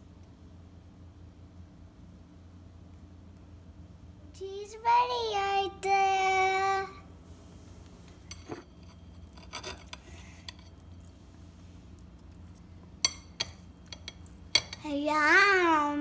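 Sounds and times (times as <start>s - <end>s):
child singing: 4.4s - 7.0s
knife clinking on ceramic plate: 8.2s - 10.7s.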